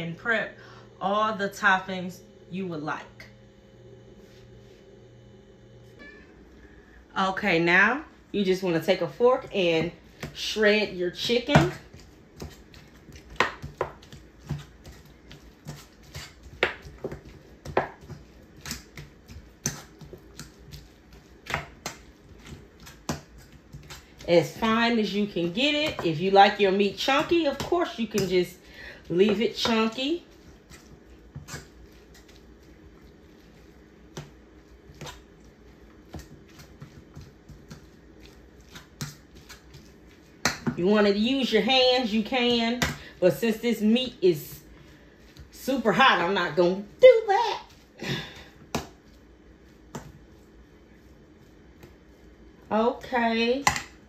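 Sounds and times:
soft squishing of meat: 0:30.0 - 0:40.6, 0:47.6 - 0:52.7.

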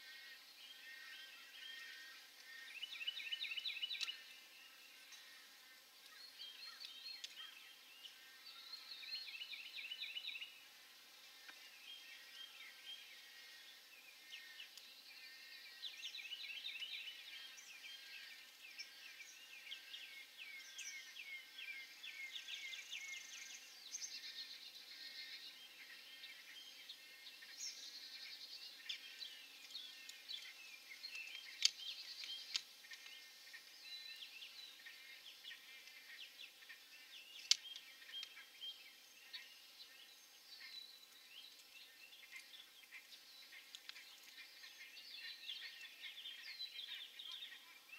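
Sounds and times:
birds calling and singing: 0:00.0 - 0:47.9
faint background hiss: 0:00.0 - 0:47.9.

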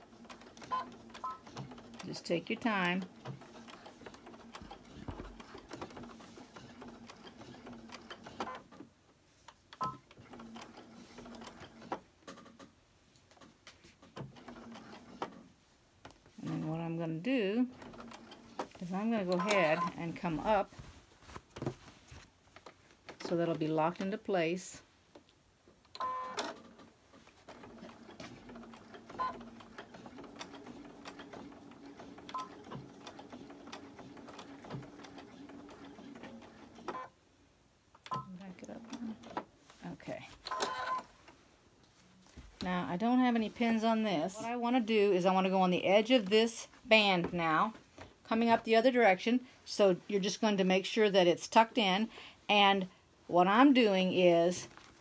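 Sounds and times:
sewing machine stitching: 0:00.0 - 0:08.8, 0:09.7 - 0:12.6, 0:14.0 - 0:15.5, 0:17.6 - 0:20.6, 0:26.0 - 0:37.1
sewing machine beep: 0:00.6 - 0:01.5, 0:09.8 - 0:10.0, 0:19.3 - 0:20.0, 0:26.0 - 0:26.4, 0:29.2 - 0:29.4, 0:32.3 - 0:32.6, 0:40.5 - 0:41.1.

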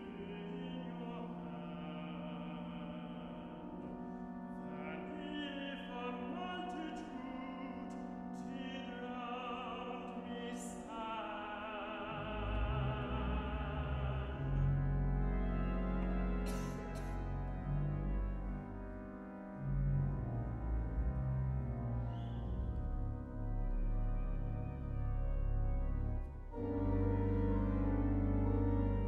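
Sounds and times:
church organ: 0:00.0 - 0:29.0
deep organ bass notes: 0:00.0 - 0:29.0
choir singing: 0:08.4 - 0:14.7.

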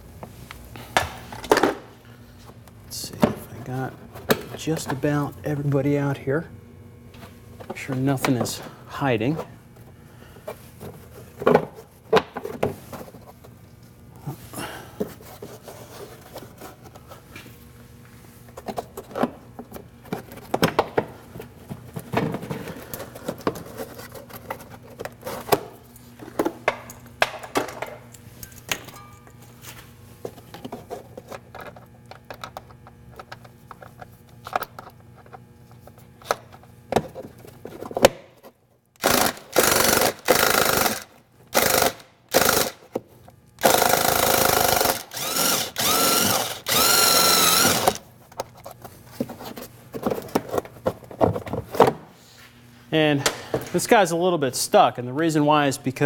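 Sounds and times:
power tool bursts: 0:39.0 - 0:42.8, 0:43.6 - 0:48.0.

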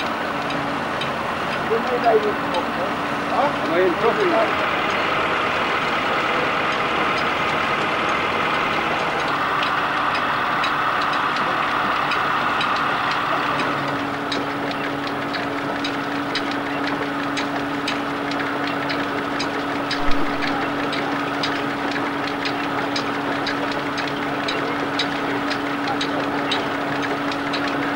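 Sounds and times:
light irregular ticks: 0:00.0 - 0:05.1, 0:06.0 - 0:27.9
engine humming: 0:00.0 - 0:27.9
brief thump: 0:20.0 - 0:20.6.

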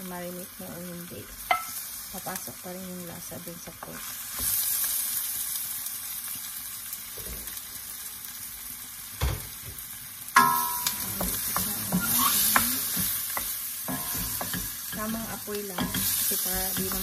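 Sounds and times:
meat sizzling in oil: 0:00.0 - 0:17.0
wooden spoon stirring: 0:10.4 - 0:17.0.

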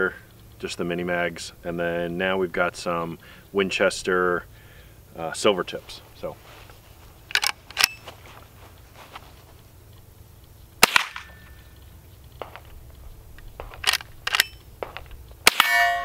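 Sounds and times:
metallic handling clicks: 0:07.2 - 0:08.2, 0:09.8 - 0:15.7
rifle shots cracking: 0:10.8 - 0:11.6, 0:13.4 - 0:16.0
steel target ringing: 0:15.4 - 0:16.0.

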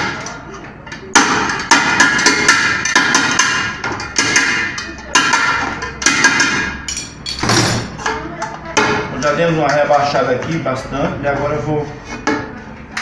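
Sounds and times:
hammer striking metal rim: 0:01.2 - 0:07.9.

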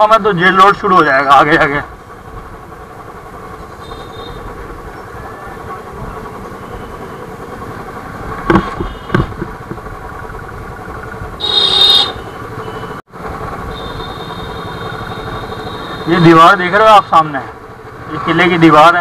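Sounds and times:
motorcycle engine running: 0:00.0 - 0:19.0
sharp knocks: 0:08.4 - 0:09.9.

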